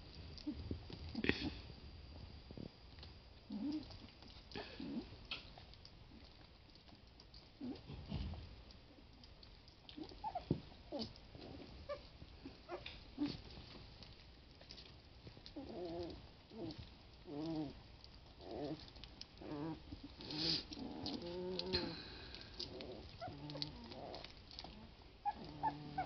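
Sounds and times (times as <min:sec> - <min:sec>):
puppies whimpering and grunting: 0:03.5 - 0:05.2, 0:09.8 - 0:13.6, 0:15.5 - 0:26.0
puppies whining: 0:10.0 - 0:12.1, 0:22.6 - 0:26.0.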